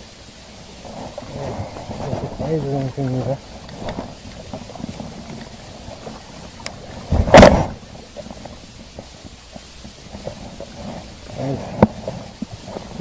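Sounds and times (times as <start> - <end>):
faint clicks: 3.6 - 6.8.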